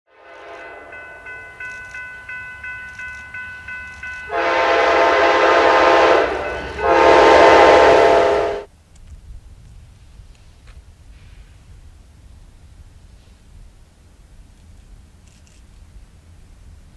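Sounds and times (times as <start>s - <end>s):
train air horn blasts: 0.1s - 1.3s, 4.1s - 8.7s
train approaching: 0.1s - 8.7s
bell ringing: 0.3s - 5.0s, 6.2s - 7.1s.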